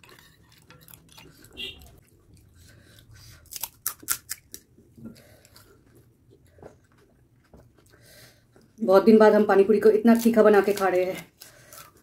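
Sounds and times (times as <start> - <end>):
chewing: 0.0 - 8.7
crisp shells cracking and crunching: 3.4 - 4.7.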